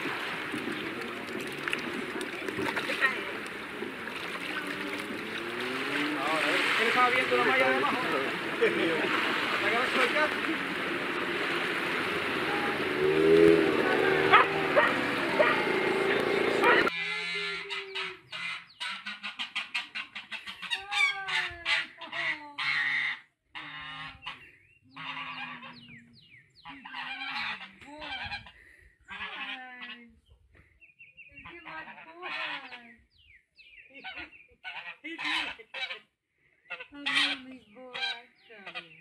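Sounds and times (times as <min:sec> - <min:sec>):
goose honking: 0:12.4 - 0:24.4, 0:25.0 - 0:26.0, 0:26.6 - 0:28.4, 0:29.1 - 0:30.0, 0:34.0 - 0:36.1, 0:36.7 - 0:38.9.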